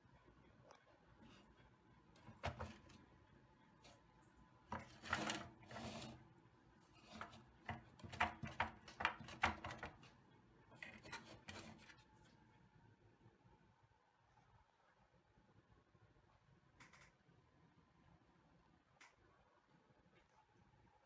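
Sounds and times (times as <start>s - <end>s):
metal toy scraping on countertop: 4.7s - 6.2s, 6.8s - 10.0s, 10.9s - 12.0s.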